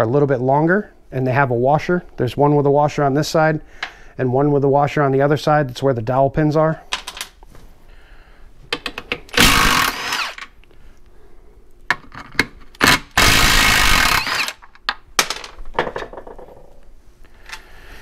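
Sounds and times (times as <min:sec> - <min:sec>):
power tool spinning out bolts: 0:09.4 - 0:10.5, 0:12.8 - 0:14.6.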